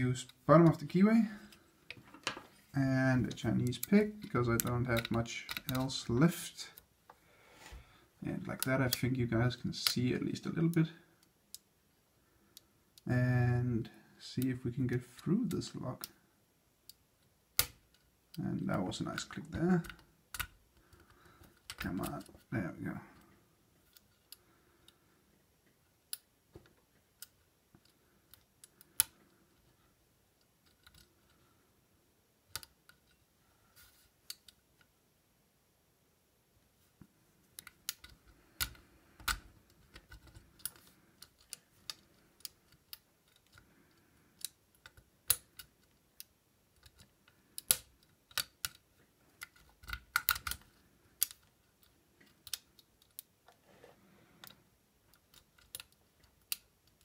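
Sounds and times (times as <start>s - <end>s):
lock pick metallic clicks: 17.6s - 18.0s, 37.6s - 53.3s, 54.4s - 57.0s.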